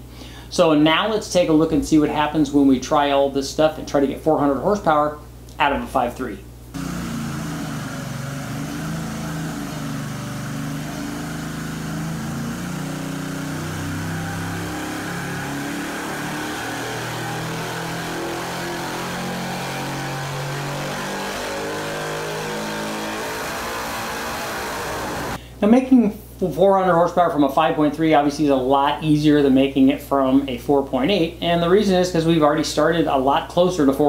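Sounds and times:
car engine running: 0:06.8 - 0:25.4.

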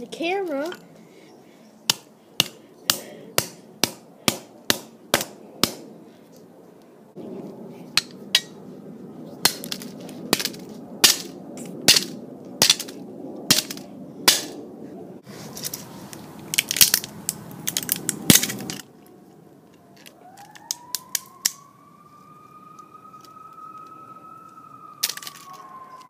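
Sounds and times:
siren rising in pitch: 0:20.1 - 0:26.0.

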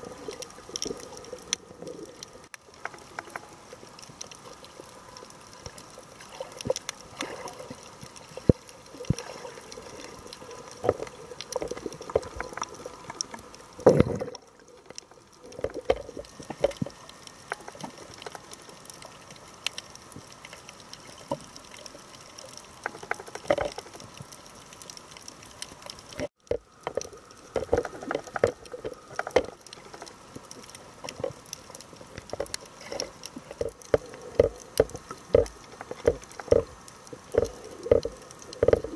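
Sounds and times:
watery gurgles: 0:00.0 - 0:19.3, 0:26.1 - 0:38.9
underwater clicks and knocks: 0:02.7 - 0:04.3, 0:08.4 - 0:19.0, 0:22.8 - 0:24.4, 0:26.2 - 0:38.9.

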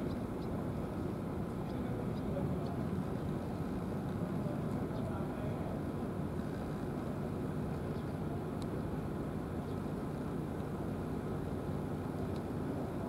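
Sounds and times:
faint ticks: 0:08.6 - 0:08.8, 0:12.1 - 0:12.5.

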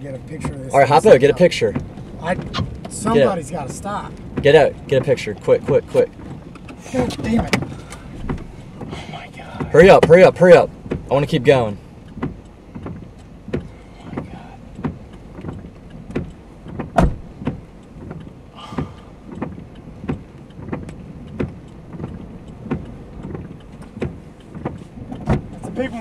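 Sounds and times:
vehicle rumble: 0:00.0 - 0:26.0
repeating knock inside car: 0:10.8 - 0:11.2.

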